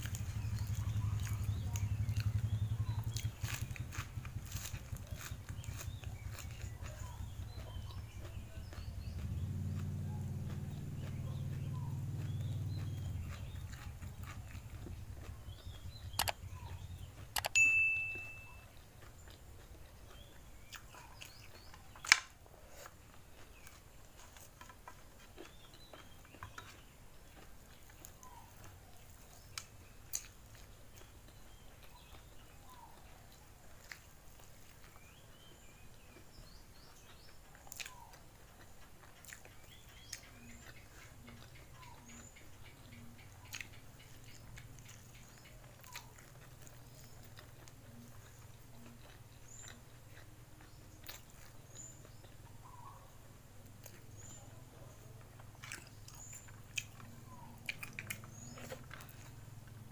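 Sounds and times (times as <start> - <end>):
chewing and mouth sounds: 0.0 - 59.9
faint bird chirps: 10.1 - 19.4
sharp clicks: 16.1 - 16.4, 17.3 - 17.6
high ringing ping: 17.5 - 18.6.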